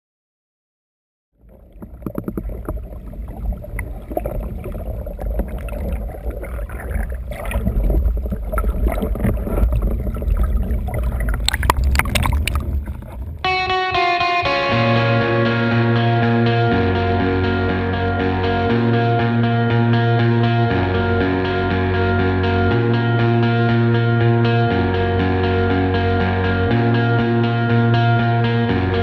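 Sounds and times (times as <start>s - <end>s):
water bubbling underwater: 1.4s - 13.5s.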